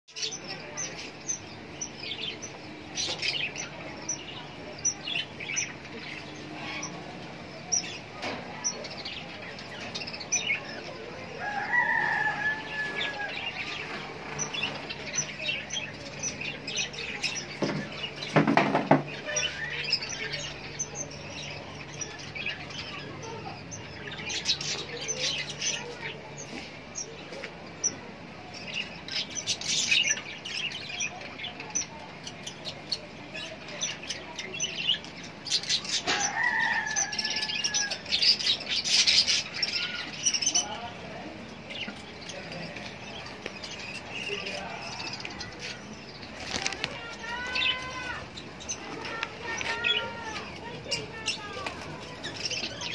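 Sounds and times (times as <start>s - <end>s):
wings flapping: 46.3s - 47.1s, 51.4s - 52.2s.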